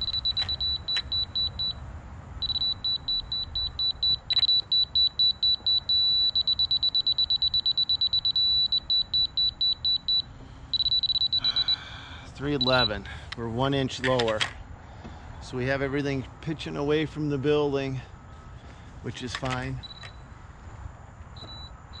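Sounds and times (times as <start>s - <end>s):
laser receiver beeping: 0.0s - 1.8s, 2.4s - 11.7s, 12.6s - 13.0s, 19.8s - 20.2s.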